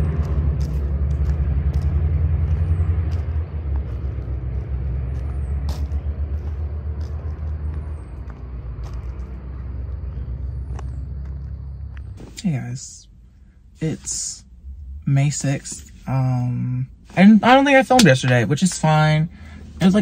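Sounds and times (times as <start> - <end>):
low steady rumble: 0.0 - 20.0.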